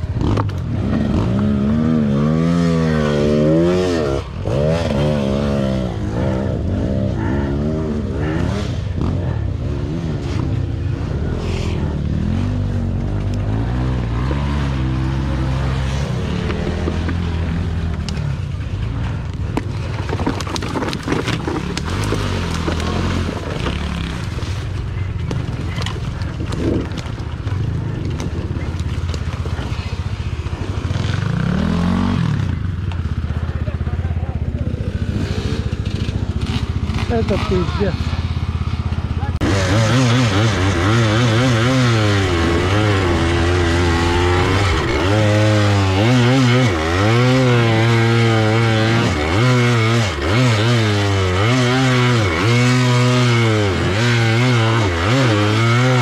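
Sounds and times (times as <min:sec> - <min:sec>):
dirt bike engine revving: 0:00.0 - 0:19.2, 0:21.3 - 0:56.0
scraping and knocking on ground: 0:19.2 - 0:29.9.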